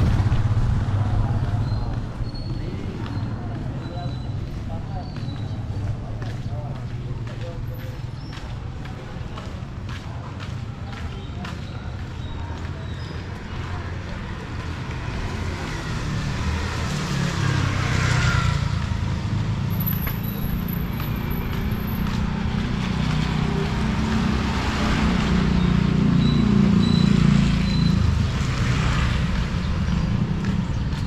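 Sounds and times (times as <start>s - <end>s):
vehicles passing close by: 0.0s - 31.0s.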